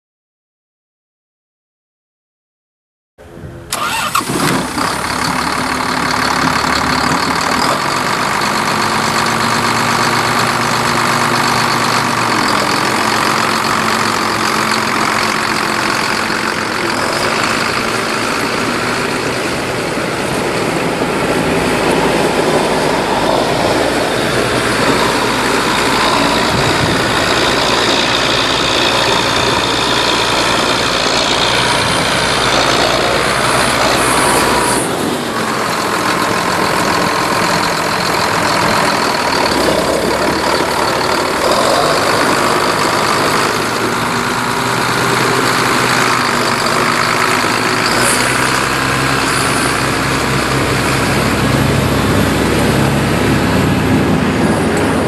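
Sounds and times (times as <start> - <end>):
tractor diesel engine running: 3.2 - 55.0.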